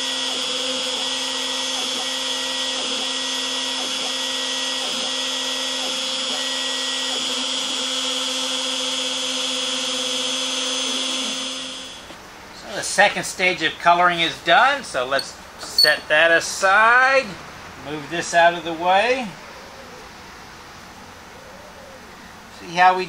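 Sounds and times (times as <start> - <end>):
router cutting wood: 0.0 - 12.1.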